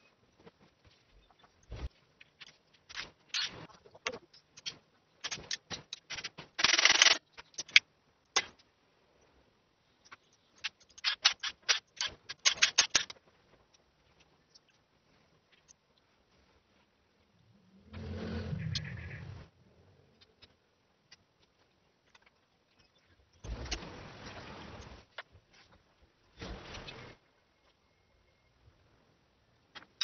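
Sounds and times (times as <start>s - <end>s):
quick clicks: 4.6s - 8.6s.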